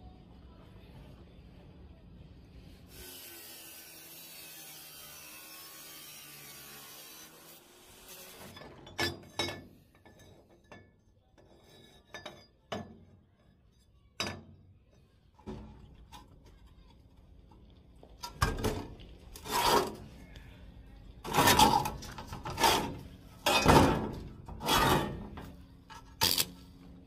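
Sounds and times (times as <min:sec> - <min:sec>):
metal scraping hiss: 0:02.8 - 0:08.8.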